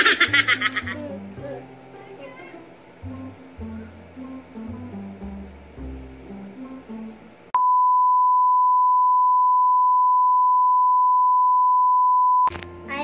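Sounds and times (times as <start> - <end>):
background guitar music: 0.5 - 7.5
steady single-pitch beep tone: 7.6 - 12.5.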